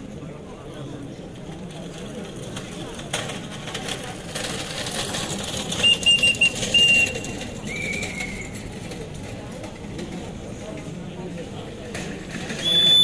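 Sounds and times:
crowd walking past: 0:00.0 - 0:13.0
high whistle blasts: 0:12.6 - 0:13.0.

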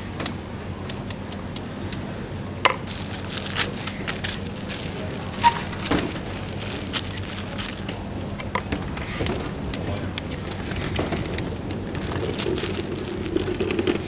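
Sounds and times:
street background noise: 0:00.0 - 0:14.0.

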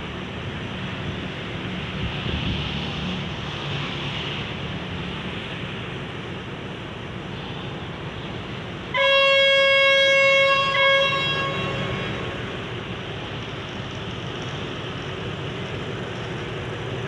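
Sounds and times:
locomotive air horn blast: 0:08.9 - 0:12.7.

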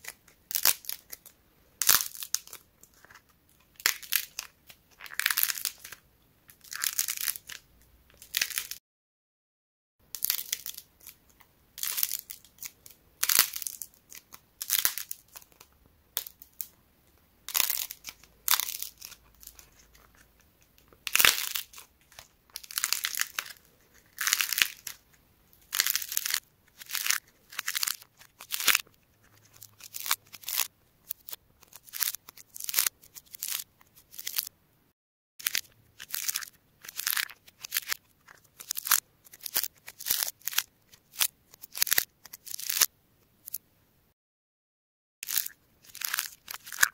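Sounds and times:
dried clay crackling and crunching: 0:00.0 - 0:08.8, 0:10.1 - 0:16.8, 0:17.4 - 0:34.5, 0:35.4 - 0:43.6, 0:45.2 - 0:46.9.

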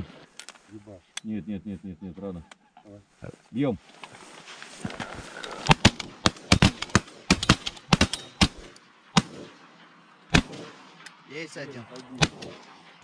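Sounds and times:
shotgun blasts: 0:05.6 - 0:11.3, 0:12.1 - 0:13.0.

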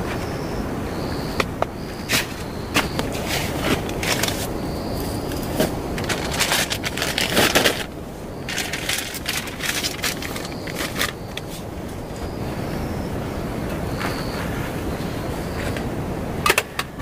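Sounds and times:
plastic bag crinkling: 0:05.1 - 0:11.5.

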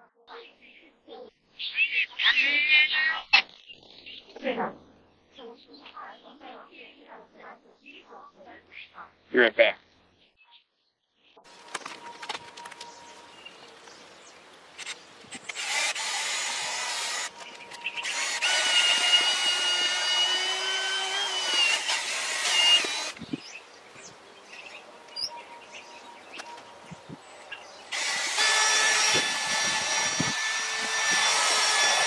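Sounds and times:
drill motor whine: 0:15.5 - 0:23.2, 0:27.9 - 0:32.0.

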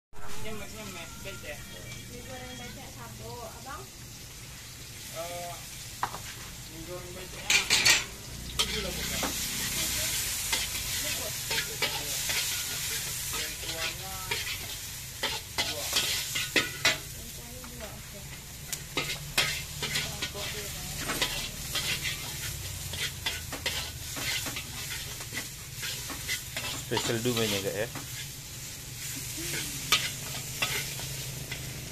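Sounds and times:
food sizzling in a wok: 0:00.2 - 0:31.9
metal spatula scraping a wok: 0:07.2 - 0:31.9.

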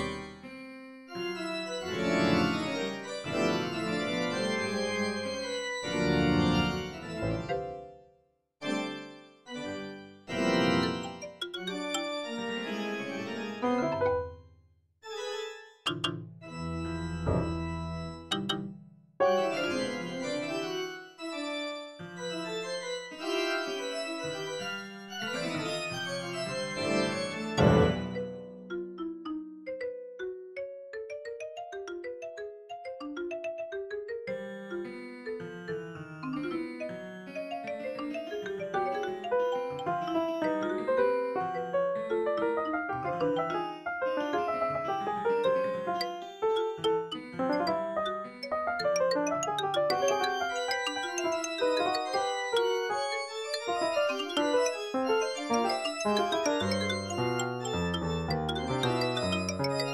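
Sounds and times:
organ playing atonal chords: 0:00.0 - 0:07.6, 0:08.6 - 0:14.3, 0:16.5 - 0:18.4, 0:25.4 - 0:28.4, 0:45.7 - 0:59.9.

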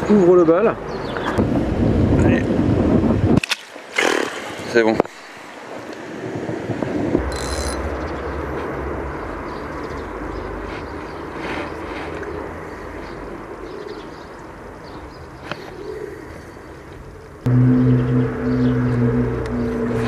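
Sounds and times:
low rumble: 0:07.2 - 0:10.1, 0:17.4 - 0:20.0.

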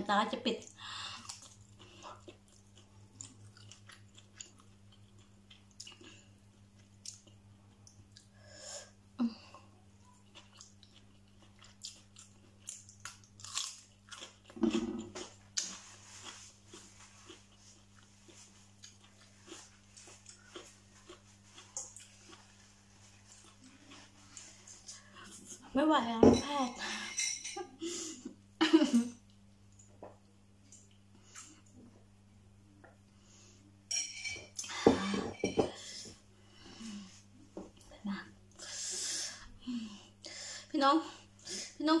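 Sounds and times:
person chewing noodles: 0:01.0 - 0:08.4, 0:10.0 - 0:25.6.

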